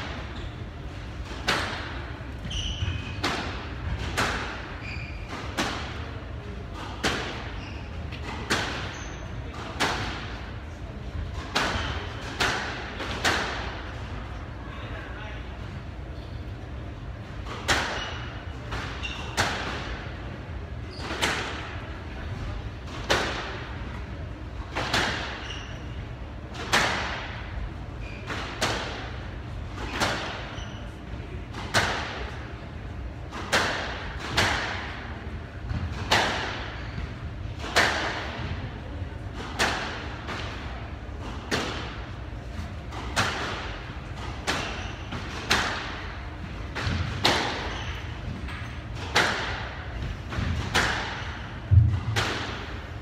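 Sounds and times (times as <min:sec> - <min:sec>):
squash ball being struck: 0:01.2 - 0:04.8, 0:33.3 - 0:38.6, 0:42.9 - 0:53.0.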